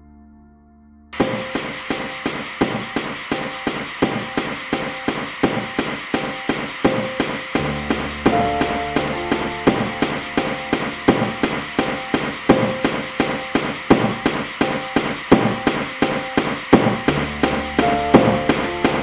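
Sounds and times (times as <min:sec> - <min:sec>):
sustained high tones: 0:01.2 - 0:16.0
knocking percussion beat: 0:01.2 - 0:19.0
low bass note: 0:07.6 - 0:12.7, 0:17.1 - 0:18.8.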